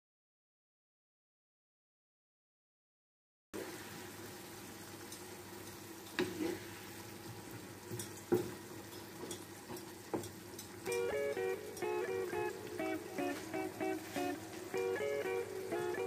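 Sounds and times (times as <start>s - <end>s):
curry sizzling in a frying pan: 3.6s - 16.0s
wooden spatula knocking on pan: 7.9s - 11.0s.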